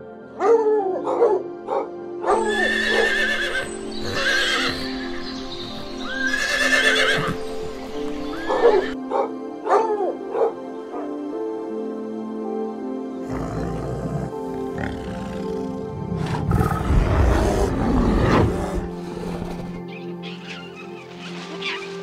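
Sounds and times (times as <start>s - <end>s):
background music: 0.0s - 22.0s
horses whinnying: 2.3s - 5.4s, 6.0s - 7.5s, 8.1s - 9.0s, 13.2s - 21.9s.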